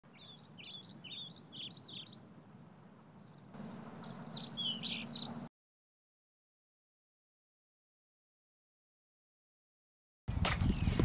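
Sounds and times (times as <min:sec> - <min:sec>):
songbirds chirping: 0:00.0 - 0:05.5
low outdoor rumble: 0:00.1 - 0:05.5.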